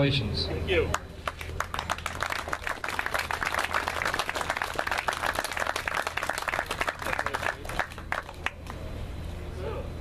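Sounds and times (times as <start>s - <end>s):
crowd applauding: 1.2s - 8.8s.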